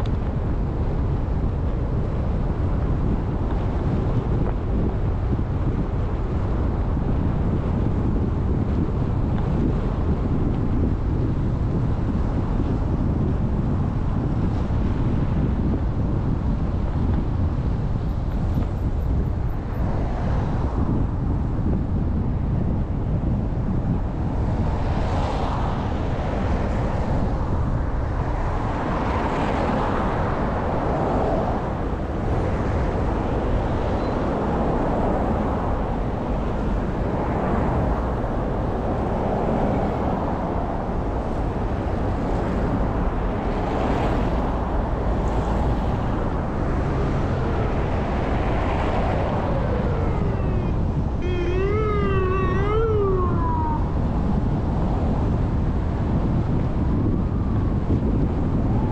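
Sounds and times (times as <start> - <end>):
tyres and wind rushing: 0.0 - 58.9
wavering pitched tone: 49.5 - 54.0.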